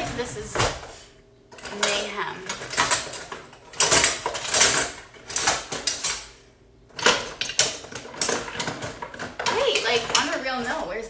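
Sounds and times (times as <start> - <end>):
metal utensils clattering: 1.6 - 6.3, 6.9 - 10.9.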